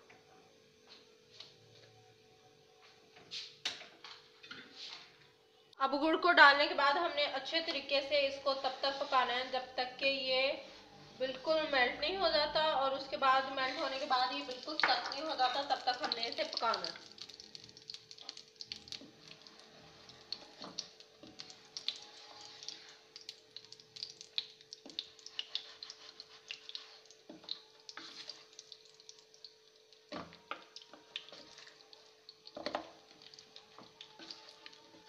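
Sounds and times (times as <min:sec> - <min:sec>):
faint crackling sizzle: 0:06.6 - 0:35.0
wooden spatula scraping a pan: 0:08.4 - 0:09.6, 0:13.3 - 0:16.2, 0:22.0 - 0:23.0, 0:25.2 - 0:28.5, 0:33.8 - 0:35.0.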